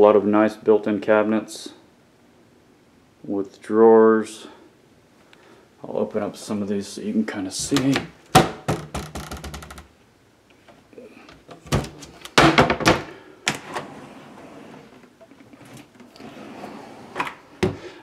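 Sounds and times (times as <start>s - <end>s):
cabinet doors and drawers closing: 11.3s - 17.9s.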